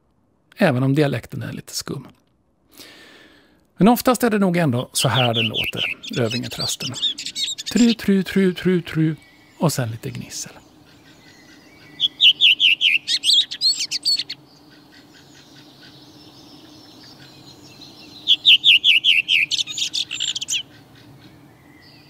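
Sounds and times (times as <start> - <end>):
redwing singing: 2.8 - 22.0.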